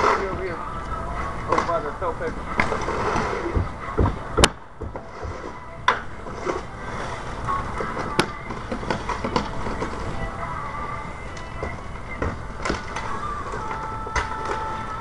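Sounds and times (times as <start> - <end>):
tools knocking and scraping on roof: 1.5 - 5.5.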